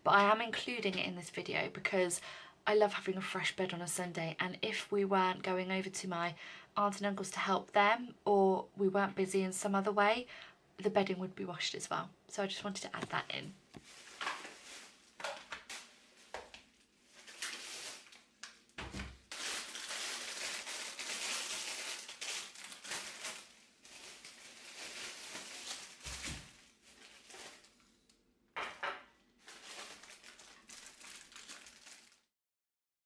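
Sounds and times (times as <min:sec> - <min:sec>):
plastic bag rustling: 0:13.1 - 0:18.5, 0:19.2 - 0:28.0, 0:29.4 - 0:32.3
items thudding on stone worktop: 0:28.6 - 0:29.1.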